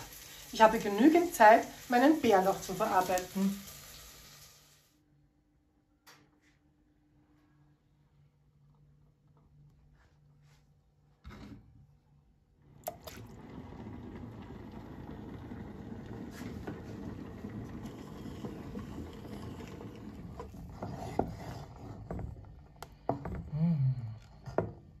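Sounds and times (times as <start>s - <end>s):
soup churning in a pot: 12.8s - 23.5s.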